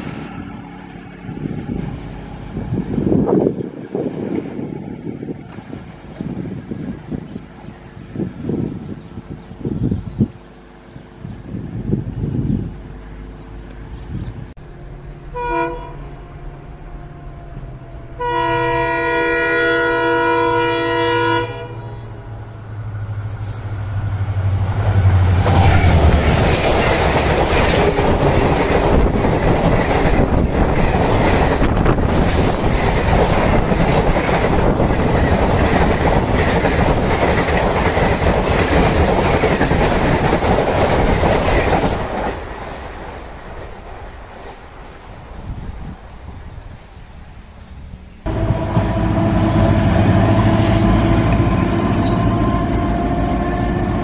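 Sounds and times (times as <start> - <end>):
locomotive engine rumble: 0.0 - 54.0
locomotive horn: 14.6 - 22.3, 48.3 - 54.0
train clattering on rails: 22.9 - 45.4.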